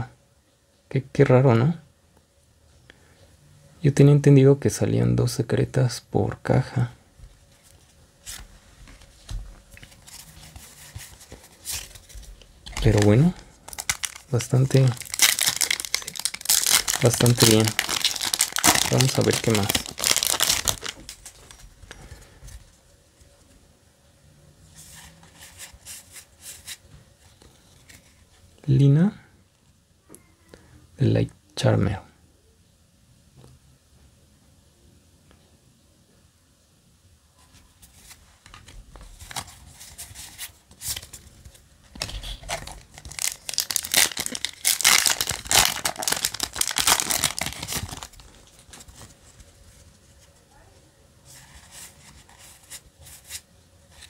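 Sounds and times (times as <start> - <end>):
foil wrapper crackling: 11.7 - 21.6, 42.0 - 49.2.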